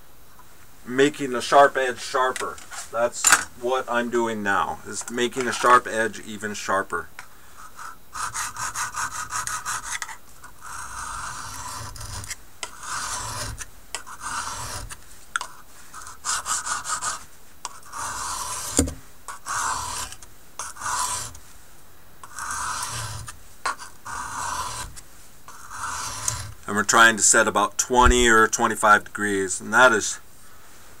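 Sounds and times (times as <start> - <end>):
knife scraping on honing stone: 8.2 - 21.4, 22.2 - 26.6.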